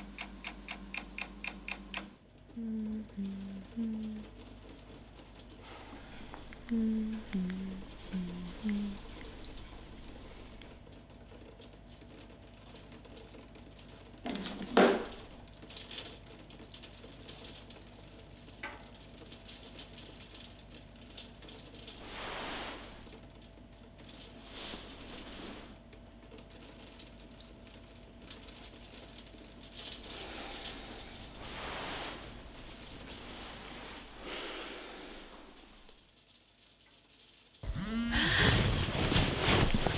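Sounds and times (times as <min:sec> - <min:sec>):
person exhaling breathily: 0:34.2 - 0:35.5, 0:37.8 - 0:38.8.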